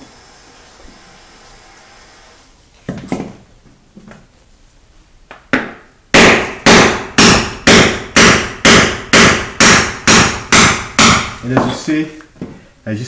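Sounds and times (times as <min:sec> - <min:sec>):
sledgehammer striking chisel: 0:06.2 - 0:11.8.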